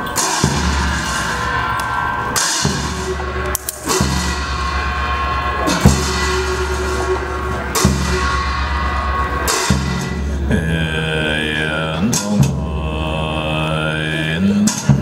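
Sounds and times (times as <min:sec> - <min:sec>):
drum and cymbal strikes: 0:00.0 - 0:10.8, 0:14.6 - 0:15.0
low sustained drone: 0:00.0 - 0:14.4.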